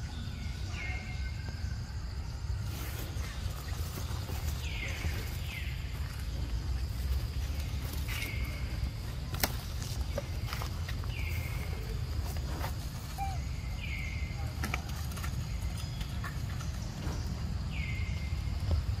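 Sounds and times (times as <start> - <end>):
faint insect tones: 0.0 - 19.0
high-pitched animal call: 13.1 - 13.6.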